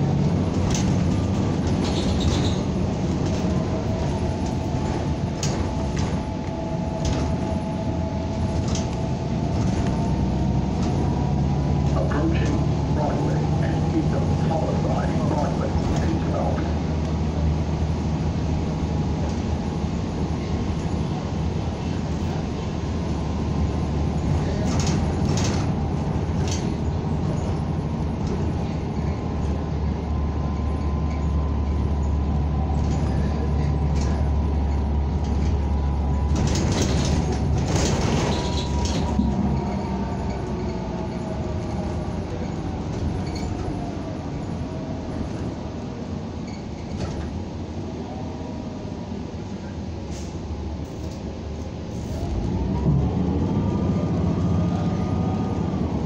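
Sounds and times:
bus engine drone: 0:00.0 - 0:56.0
rattling clatters: 0:24.5 - 0:27.6, 0:32.7 - 0:43.8.

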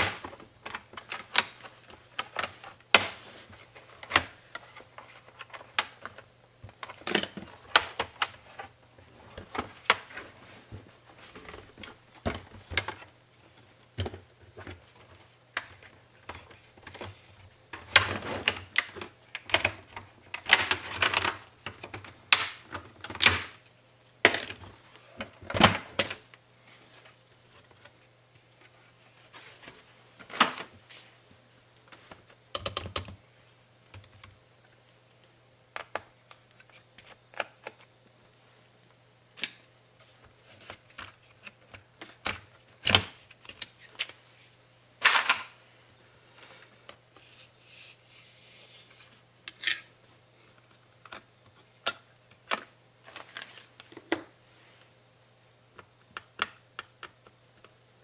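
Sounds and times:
plastic being handled: 0:24.2 - 0:31.2, 0:50.4 - 0:54.9.

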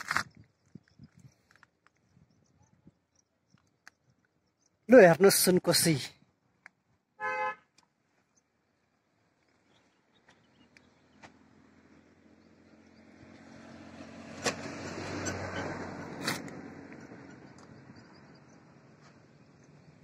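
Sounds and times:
vehicle passing: 0:11.0 - 0:19.0.

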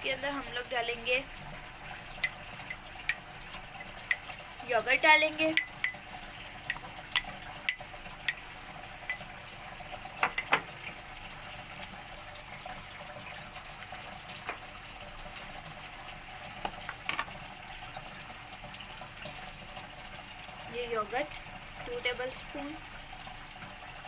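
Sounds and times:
steel bowl clinking on plastic bowl: 0:02.2 - 0:04.4, 0:05.4 - 0:06.1, 0:06.7 - 0:08.4, 0:10.2 - 0:10.7.

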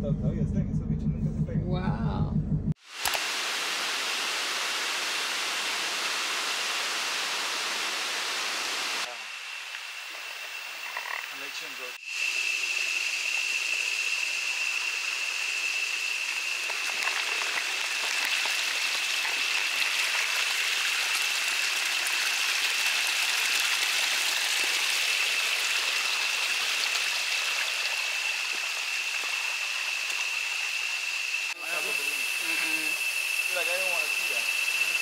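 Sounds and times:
high-pitched drone: 0:00.0 - 0:02.7, 0:29.6 - 0:35.0
stream trickling over rocks: 0:16.6 - 0:30.4.

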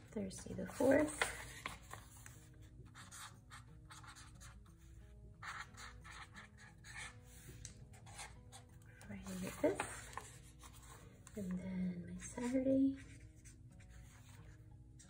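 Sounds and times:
soft background music: 0:00.0 - 0:15.0
marker scratching on paper: 0:02.8 - 0:04.6, 0:05.4 - 0:08.6, 0:12.4 - 0:14.5.

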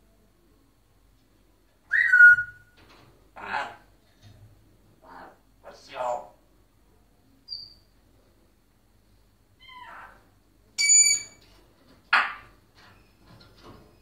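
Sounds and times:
parrot calling: 0:01.9 - 0:02.7, 0:03.4 - 0:03.9, 0:09.6 - 0:11.4.

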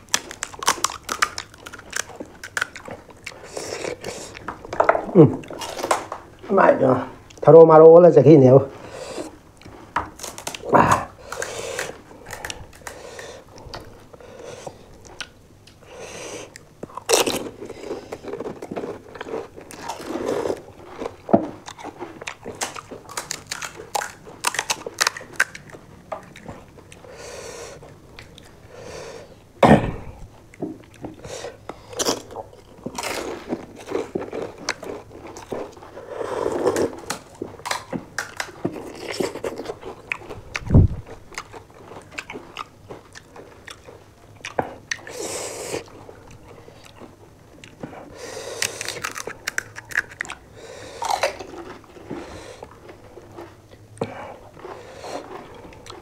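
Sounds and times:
crunching and chewing crisp snacks: 0:00.0 - 0:06.6, 0:08.8 - 0:56.0.

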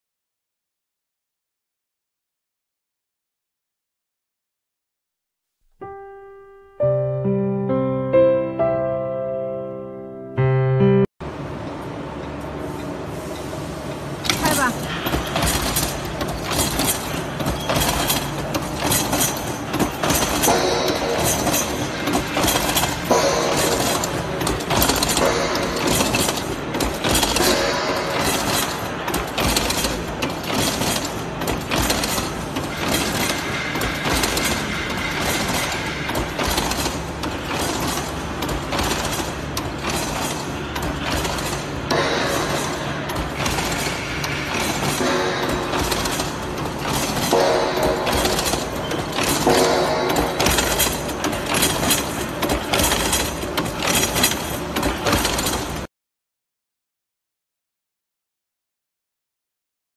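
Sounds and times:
wire netting machine clattering: 0:14.0 - 0:55.9.

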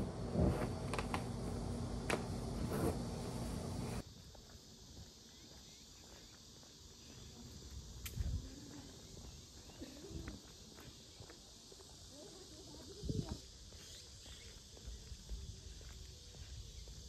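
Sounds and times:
footsteps on paved path: 0:03.9 - 0:17.0
faint bird chirping: 0:05.0 - 0:17.0.

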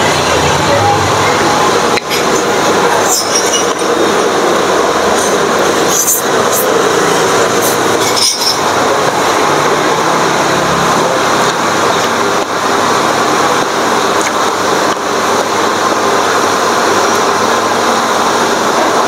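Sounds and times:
loud rushing noise: 0:00.0 - 0:19.0.

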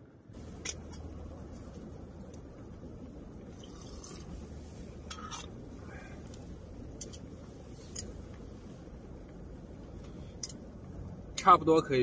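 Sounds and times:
low hum: 0:00.0 - 0:11.4
broth bubbling: 0:01.2 - 0:07.6.

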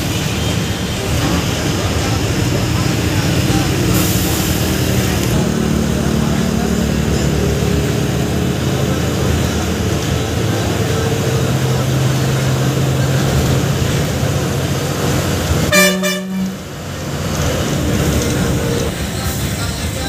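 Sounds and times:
city bus driving: 0:00.0 - 0:20.0
vehicle horn honk: 0:15.7 - 0:16.6.

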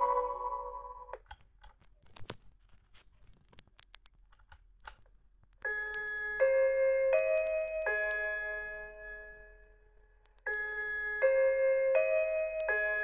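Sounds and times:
electronic chime melody: 0:00.0 - 0:01.1.

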